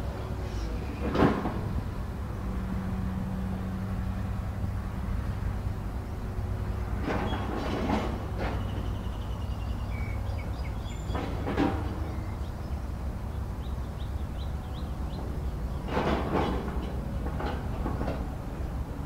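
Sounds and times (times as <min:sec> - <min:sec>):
excavator diesel engine rumbling: 0:00.0 - 0:19.0
heavy machine knocks: 0:01.0 - 0:01.8, 0:11.0 - 0:12.3, 0:15.8 - 0:18.4.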